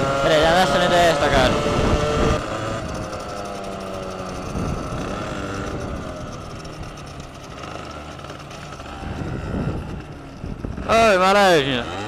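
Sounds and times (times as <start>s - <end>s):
moped engine slowing: 0.0s - 12.0s
wind on microphone: 0.9s - 7.0s, 8.9s - 11.1s.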